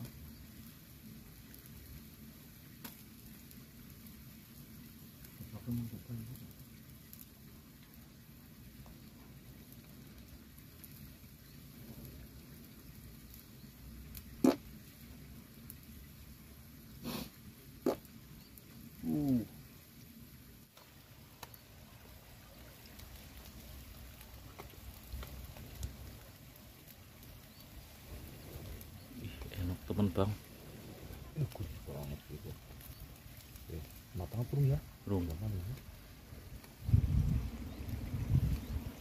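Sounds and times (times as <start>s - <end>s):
fish sizzling over embers: 0.0s - 39.0s
small crackles: 0.0s - 39.0s
small pops: 2.7s - 4.2s, 13.3s - 15.0s, 17.0s - 19.4s, 20.7s - 21.6s, 22.5s - 27.7s.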